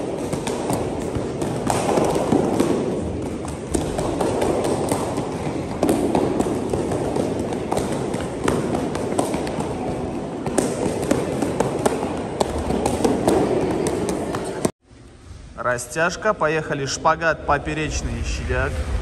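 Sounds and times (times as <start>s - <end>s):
sharp slaps on kicking paddles: 0.0s - 14.7s.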